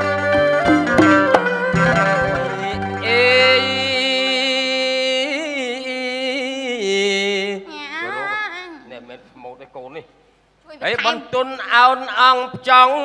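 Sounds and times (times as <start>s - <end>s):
hammered dulcimer notes: 0.0s - 3.8s.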